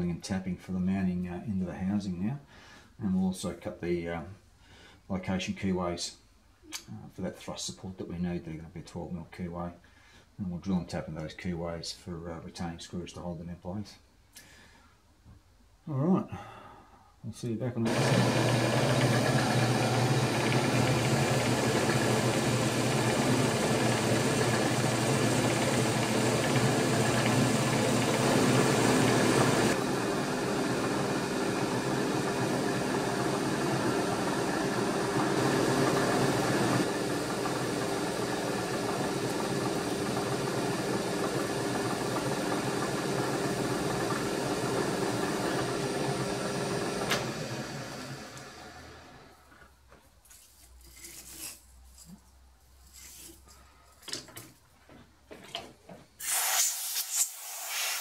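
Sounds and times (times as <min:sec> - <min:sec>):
drill cutting metal: 0:17.9 - 0:29.8
milling machine spindle running: 0:17.9 - 0:49.3
coolant spray hissing: 0:56.2 - 0:58.0.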